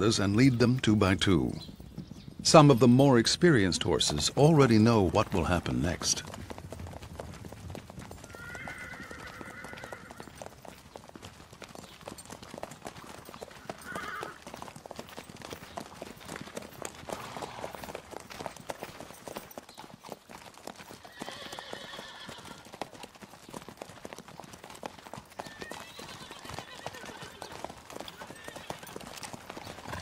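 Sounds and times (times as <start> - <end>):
hoofbeats on gravel: 0.0 - 30.0
horse whinnying: 8.2 - 10.3, 13.8 - 14.4, 21.0 - 22.7, 25.3 - 29.0.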